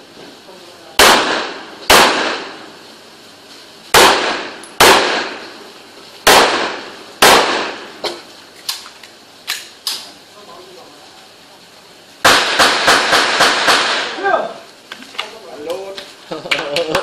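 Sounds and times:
echoing gunshots: 1.0s - 2.7s, 3.9s - 5.5s, 6.2s - 8.0s, 12.2s - 14.2s.

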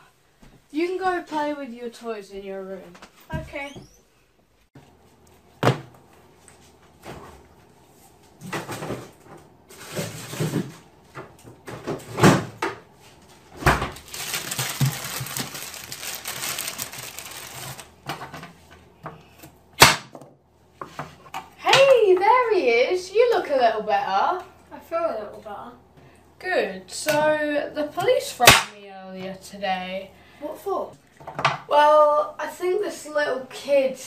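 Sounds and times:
kitchen clunks and rustles: 8.4s - 12.9s, 13.5s - 14.0s, 31.2s - 31.7s.

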